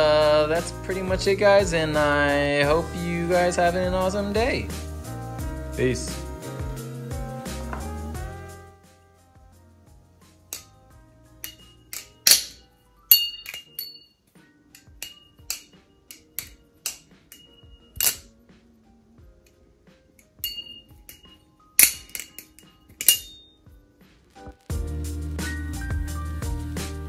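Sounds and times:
knife handles clicking and clinking: 11.4 - 18.3, 20.2 - 23.5.

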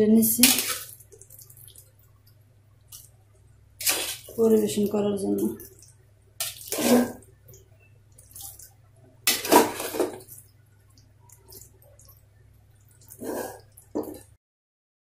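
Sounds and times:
spoon scraping a metal pot: 6.4 - 7.2, 13.2 - 14.2.

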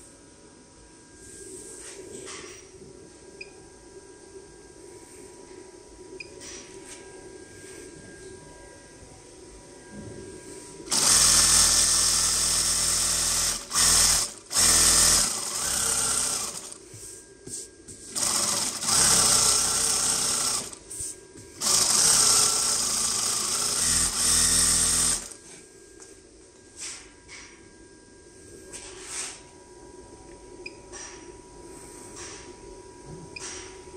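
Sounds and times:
sewing machine stitching: 10.9 - 16.8, 18.1 - 20.8, 21.6 - 25.4.

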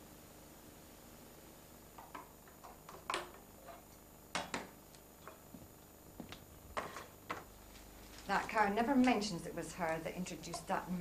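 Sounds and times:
dishes knocking and clinking: 2.0 - 4.7.

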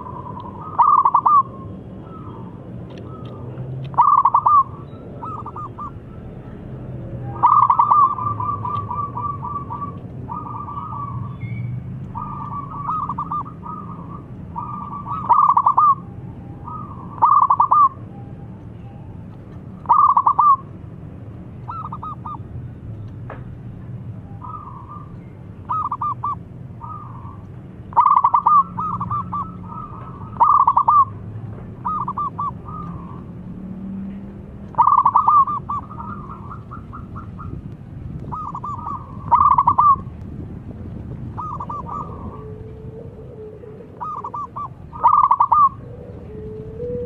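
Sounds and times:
dove cooing: 0.0 - 6.4, 7.2 - 11.4, 12.0 - 18.0, 19.8 - 20.7, 21.7 - 22.4, 24.4 - 33.4, 34.7 - 37.6, 38.2 - 40.1, 41.3 - 47.0.

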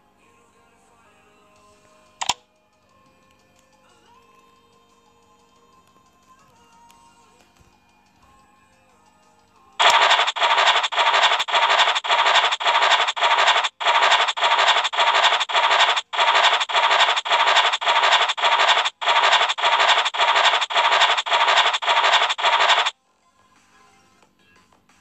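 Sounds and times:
rasping scratch sound effect: 9.8 - 22.9.

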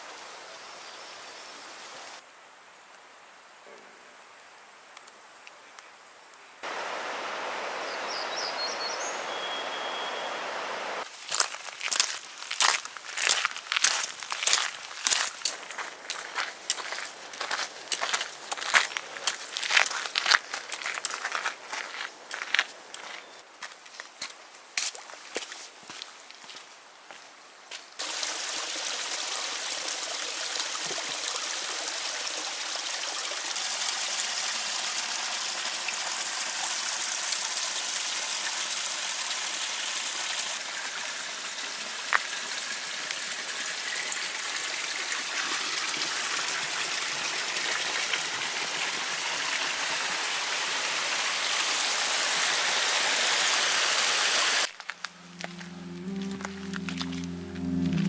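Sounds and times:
creek water rushing: 6.6 - 23.7, 28.0 - 58.0
music: 55.2 - 58.0.

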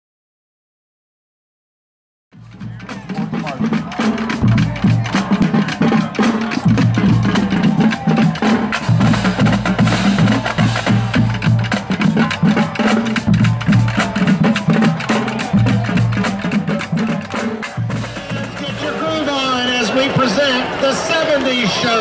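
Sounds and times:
sousaphones low bass line: 2.4 - 19.6
drum and percussion strikes: 2.4 - 20.3
marching band playing: 2.4 - 22.0.

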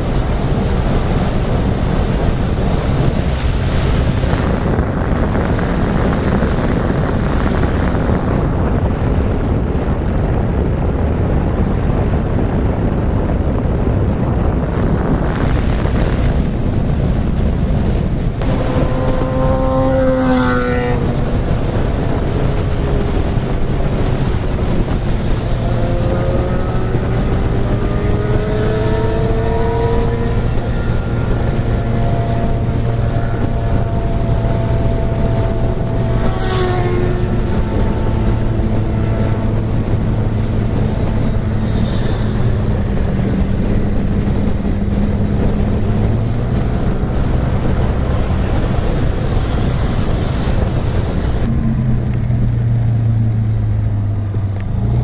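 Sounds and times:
wind noise on microphone: 0.0 - 55.0
scooter engine running: 18.2 - 46.2.

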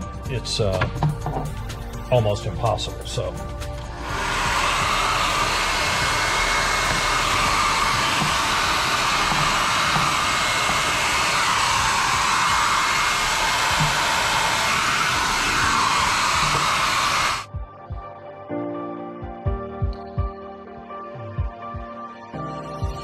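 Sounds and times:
hair dryer blowing air: 2.6 - 17.6.

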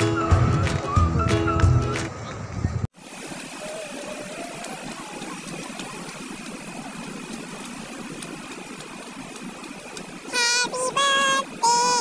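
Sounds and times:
outdoor hiss: 3.0 - 12.0.

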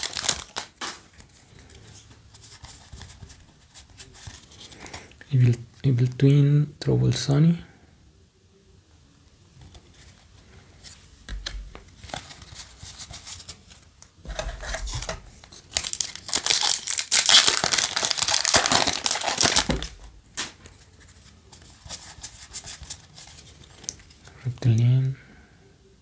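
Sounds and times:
foil wrapper crinkling and tearing: 0.0 - 1.1, 14.9 - 20.1
cards rustling and clicking: 9.6 - 24.3.

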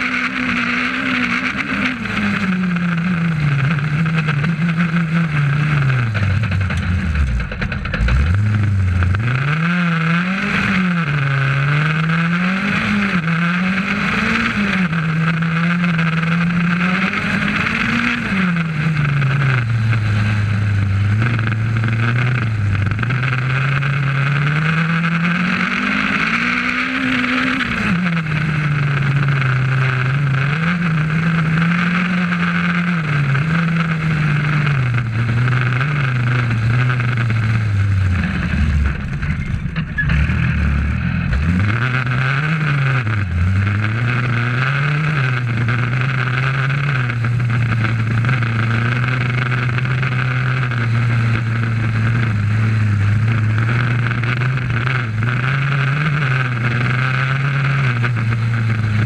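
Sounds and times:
rally car engine revving: 0.0 - 59.0.

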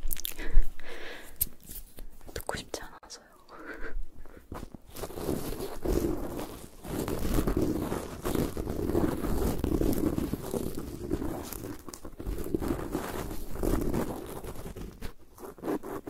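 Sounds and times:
stick scratching microphone grille: 4.6 - 16.0.

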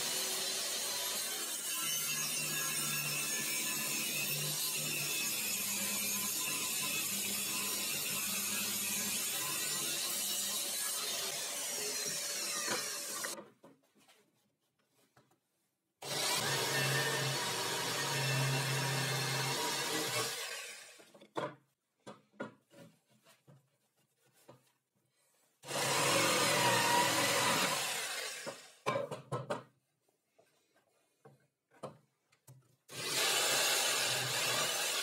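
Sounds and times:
jigsaw cutting plywood: 0.0 - 1.7, 2.3 - 13.4, 16.0 - 21.1, 25.6 - 28.8, 32.9 - 35.0.

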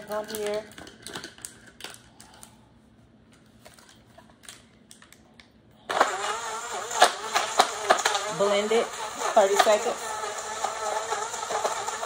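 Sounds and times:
blender blades knocking: 5.9 - 12.0
blender running loudly: 5.9 - 12.0.

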